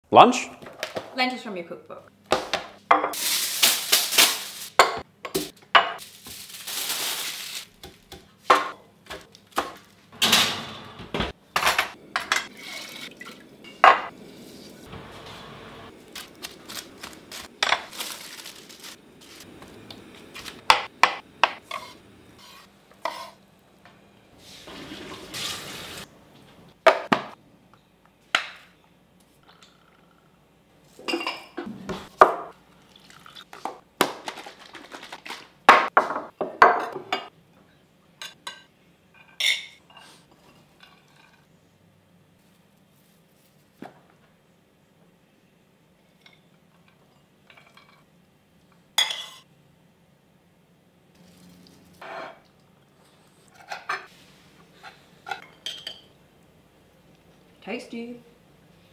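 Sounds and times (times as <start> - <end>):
metal cookware clattering: 38.2 - 40.2, 49.0 - 49.5, 54.8 - 56.1.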